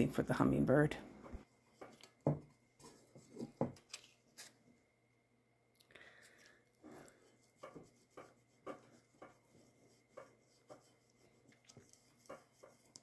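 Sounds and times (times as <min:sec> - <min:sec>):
fingertip rubbing paint through screen: 0:07.2 - 0:13.0.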